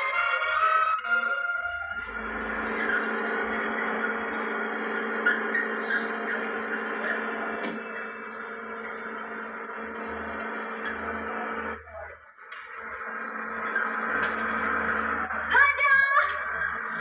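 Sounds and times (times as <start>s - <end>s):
droning film soundtrack: 0.2s - 17.0s
tape hiss: 1.0s - 17.0s.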